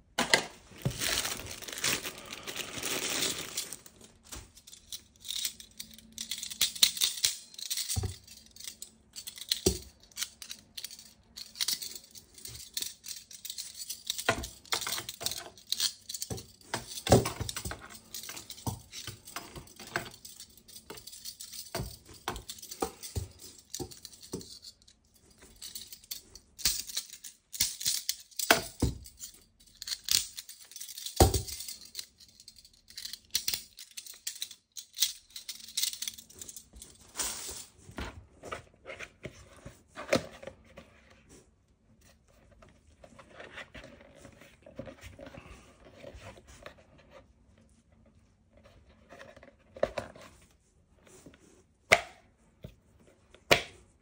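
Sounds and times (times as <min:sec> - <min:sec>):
packaging crinkling and tearing: 0:00.7 - 0:04.5.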